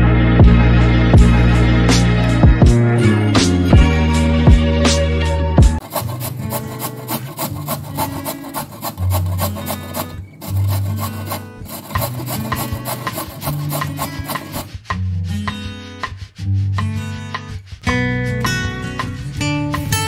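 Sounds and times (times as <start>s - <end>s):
carrot grated on metal grater: 5.8s - 14.7s.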